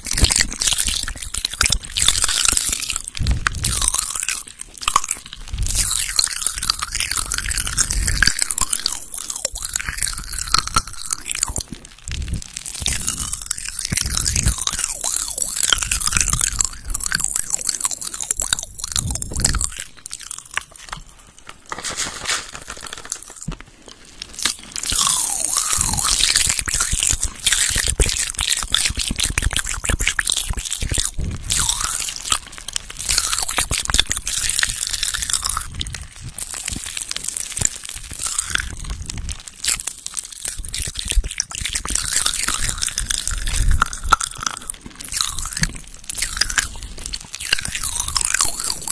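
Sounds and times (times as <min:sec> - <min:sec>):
crisp crackling and crunching: 0:00.0 - 0:48.9.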